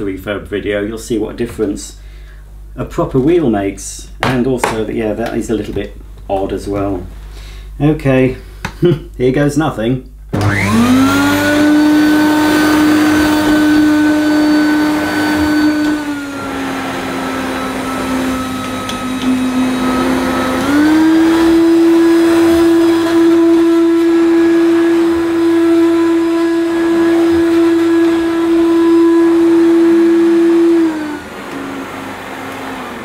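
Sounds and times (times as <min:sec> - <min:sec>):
vacuum cleaner motor whine: 0:10.3 - 0:33.0.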